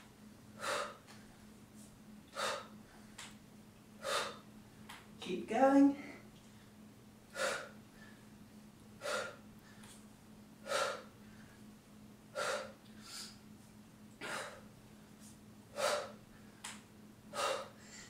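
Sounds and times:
woman breathing forcefully: 0.5 - 1.5, 2.3 - 3.4, 4.0 - 4.8, 6.0 - 8.4, 9.0 - 10.0, 10.6 - 13.5, 14.2 - 18.0.

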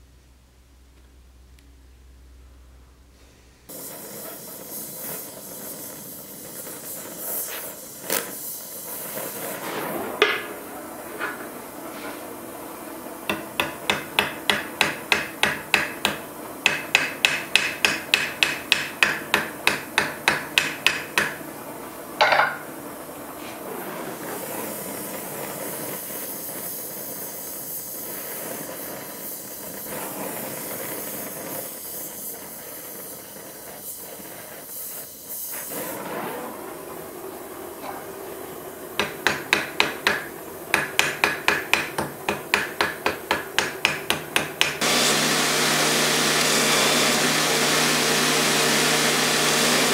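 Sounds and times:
torch flame hissing: 3.7 - 49.9
hammer peening metal: 13.3 - 21.4, 39.0 - 44.8.

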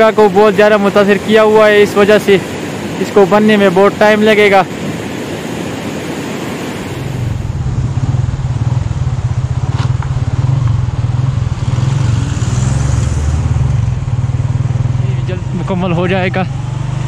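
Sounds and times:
fast river rushing: 0.0 - 8.2
motorcycle engine running: 7.1 - 17.0.

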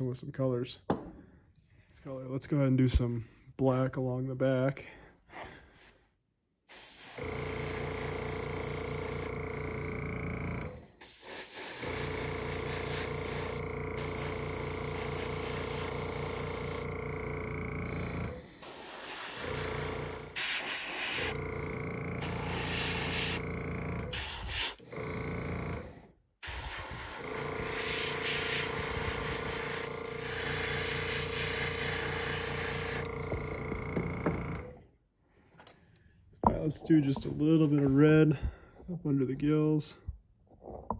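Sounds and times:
airbrush hissing: 5.8 - 6.0, 6.7 - 8.1, 11.0 - 16.9, 17.9 - 24.8, 26.4 - 33.1
compressor humming: 7.2 - 34.8.

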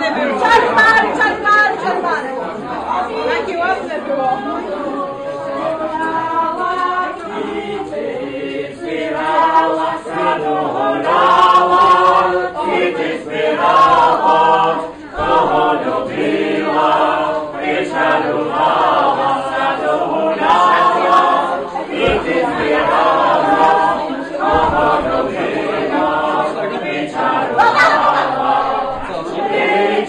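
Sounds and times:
group singing unaccompanied: 0.0 - 30.0.

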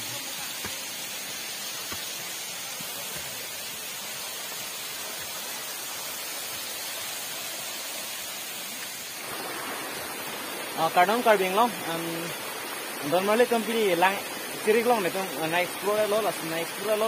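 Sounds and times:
waterfall rushing over rocks: 0.0 - 17.0.

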